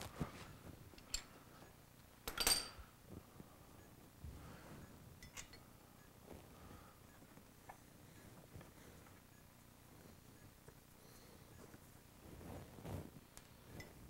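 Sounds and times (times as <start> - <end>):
metallic tool clinks: 2.3 - 2.8.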